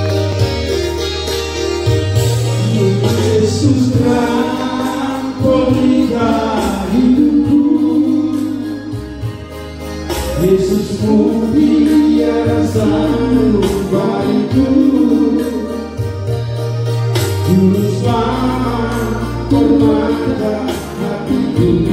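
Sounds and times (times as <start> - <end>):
instrumental accompaniment with bass: 0.0 - 21.9
man singing through a pa: 2.6 - 9.1, 10.3 - 15.9, 17.4 - 21.9.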